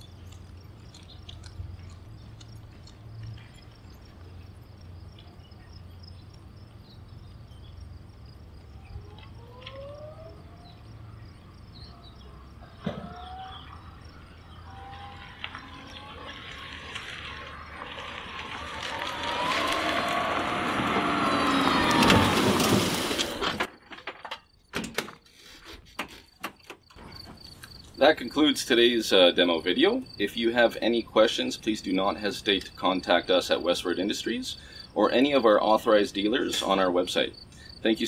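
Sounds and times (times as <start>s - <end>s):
electric vehicle motor whine: 8.6s - 23.7s
tyre noise: 14.8s - 23.8s.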